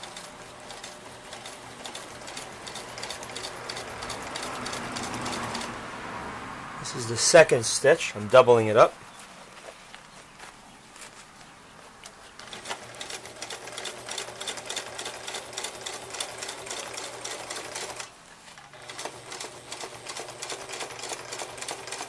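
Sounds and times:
sewing machine stitching: 0.0s - 5.8s, 12.4s - 22.0s.

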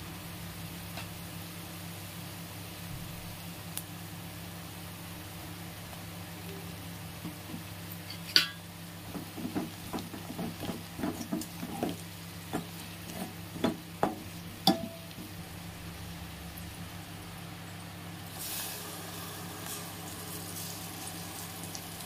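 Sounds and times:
low steady hum: 0.0s - 22.0s
spoon scraping and knocking pot: 8.1s - 15.0s.

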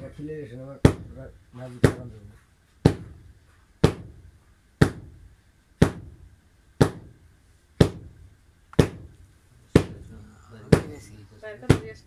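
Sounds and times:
heavy ringing thuds: 9.8s - 12.0s.

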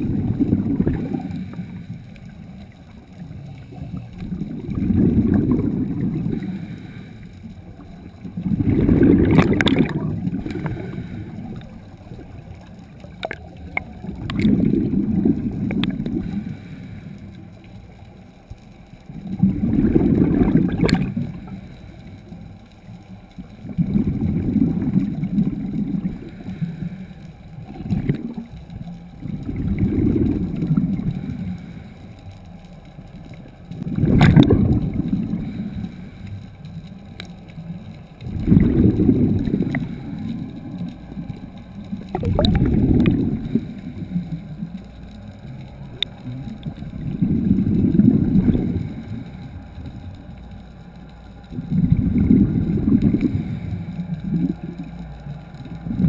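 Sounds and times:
exhaust bubbles gurgling underwater: 0.0s - 56.0s
diver inhaling through regulator: 4.8s - 7.5s, 8.4s - 11.7s, 14.4s - 17.4s, 26.0s - 27.9s, 51.6s - 54.8s.

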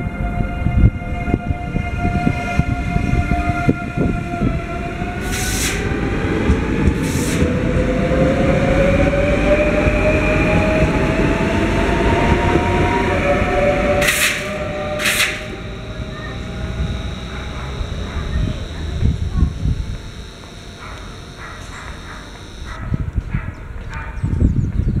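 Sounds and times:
electric train motor whine: 1.4s - 22.8s
short hisses: 5.2s - 5.8s, 14.0s - 15.6s.

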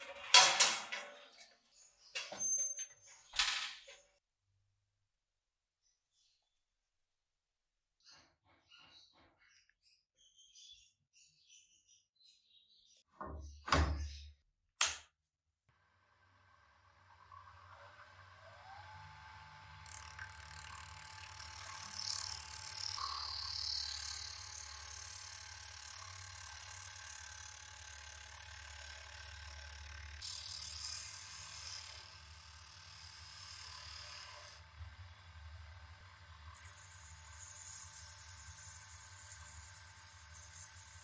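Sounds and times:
wood lathe motor whine: 16.2s - 41.0s.

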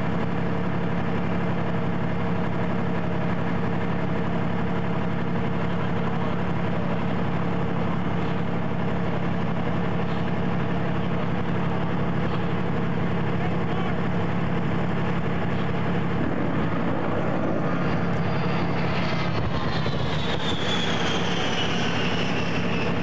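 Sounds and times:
engine running steadily: 0.0s - 23.0s.

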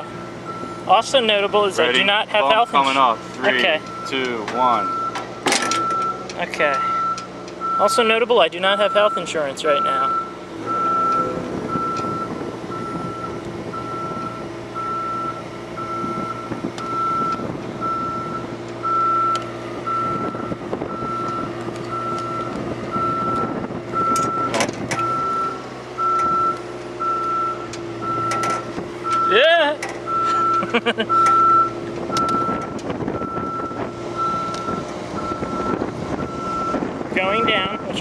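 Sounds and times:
engine running: 0.0s - 38.0s
motion alarm beeping: 4.8s - 6.2s, 6.9s - 8.1s, 8.8s - 23.4s, 25.1s - 28.4s, 29.0s - 29.5s, 30.1s - 38.0s.

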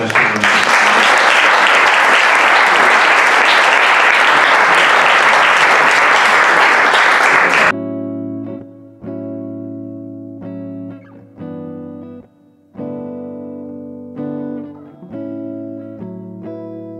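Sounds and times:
audience applauding: 0.0s - 7.7s
instrumental music with plucked notes: 7.7s - 16.9s.

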